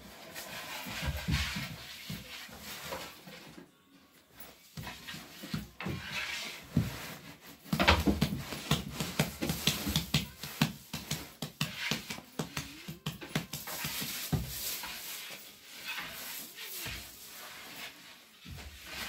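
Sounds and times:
hands patting bread dough: 0:07.6 - 0:15.0.

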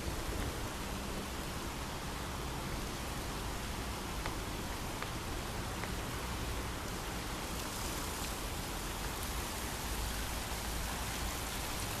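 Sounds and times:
water splashing into pond: 0:03.4 - 0:12.0.

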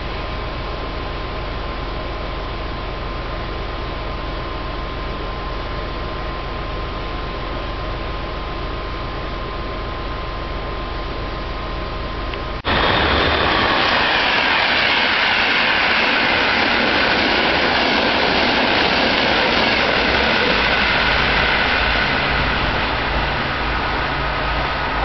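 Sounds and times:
train wheels rushing on rail: 0:12.6 - 0:25.0.

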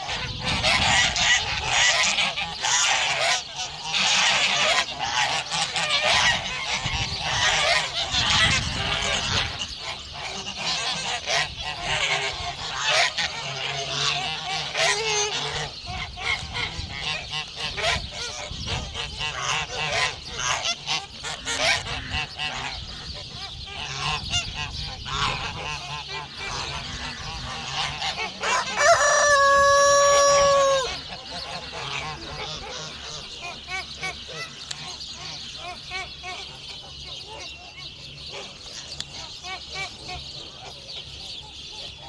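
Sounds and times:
geese honking: 0:00.0 - 0:42.0
long loud goose call: 0:25.1 - 0:33.2.

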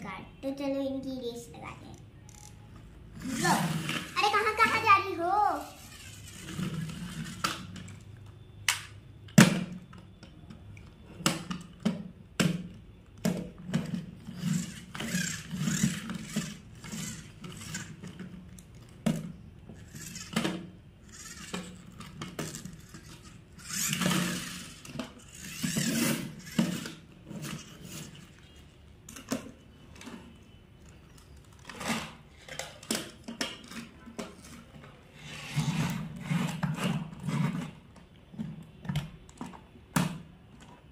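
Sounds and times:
toy car wheels rolling on wood: 0:03.1 - 0:08.1, 0:13.4 - 0:28.6, 0:31.2 - 0:38.5
toy cars clacking on wood: 0:10.5 - 0:28.5.

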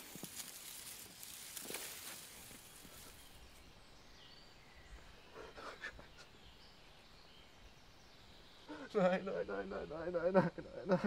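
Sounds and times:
hands digging through soil: 0:00.0 - 0:03.4
faint bird chirps: 0:00.3 - 0:11.0.

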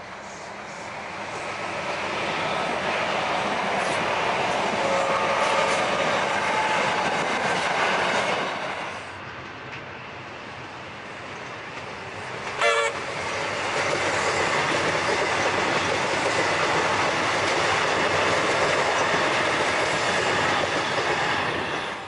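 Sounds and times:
train wheels on rail: 0:00.0 - 0:22.0
train horn toot: 0:04.8 - 0:05.8, 0:12.6 - 0:13.1.

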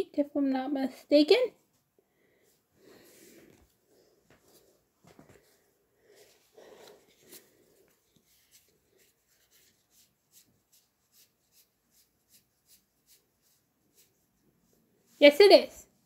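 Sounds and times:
cards rustling: 0:06.3 - 0:10.5.

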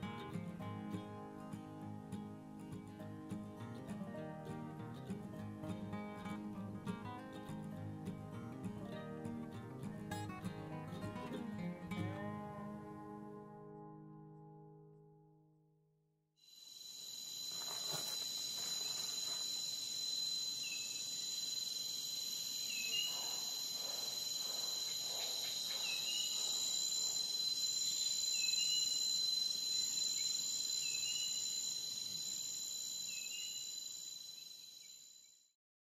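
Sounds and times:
insects chorus: 0:16.5 - 0:35.4.

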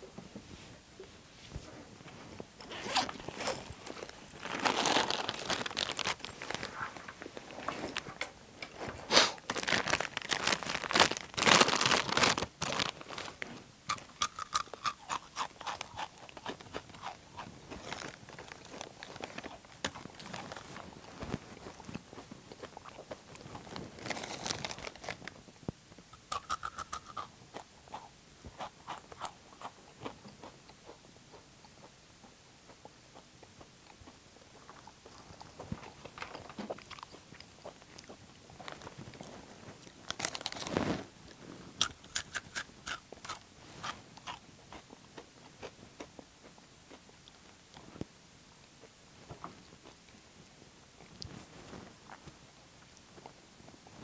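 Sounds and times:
chip bag crinkling: 0:02.6 - 0:08.2, 0:08.8 - 0:25.4, 0:38.0 - 0:41.1
person crunching chips: 0:02.8 - 0:06.8, 0:09.1 - 0:20.9, 0:22.6 - 0:25.2, 0:26.2 - 0:27.3, 0:40.0 - 0:41.0, 0:41.8 - 0:44.9.

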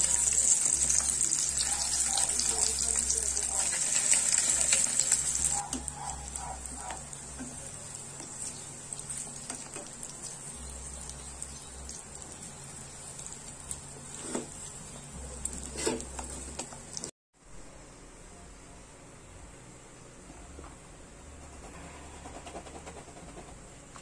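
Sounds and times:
meat sizzling in a pan: 0:00.0 - 0:17.1.

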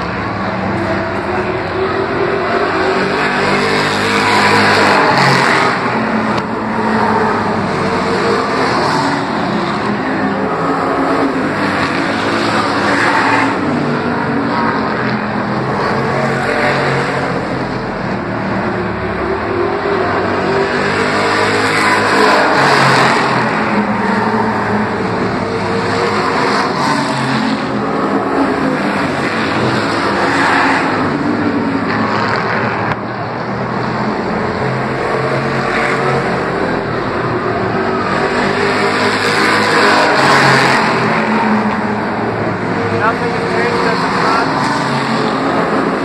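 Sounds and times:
race car engines passing: 0:00.0 - 0:46.0.

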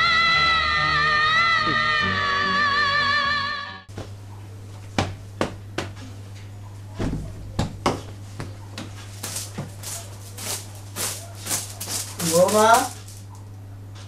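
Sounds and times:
steady low hum: 0:03.9 - 0:14.0
hand broom swishing on sheet: 0:08.8 - 0:13.2.

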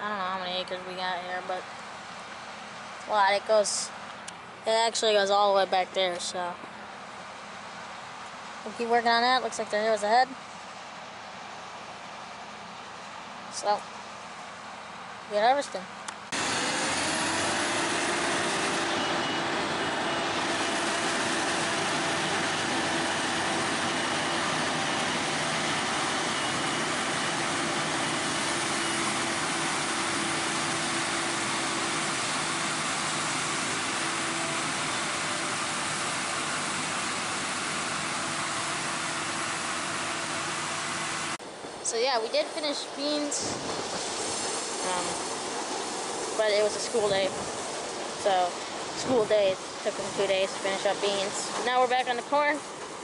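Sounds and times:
combine engine hum: 0:00.0 - 0:53.0
rushing machine noise: 0:16.3 - 0:41.8.

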